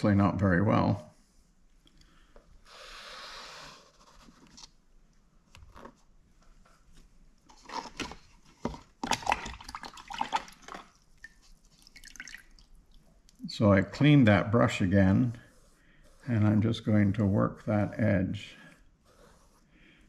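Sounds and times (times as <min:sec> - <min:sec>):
water swishing in a jar: 0:09.0 - 0:13.3
water splashes and drips: 0:09.0 - 0:13.4.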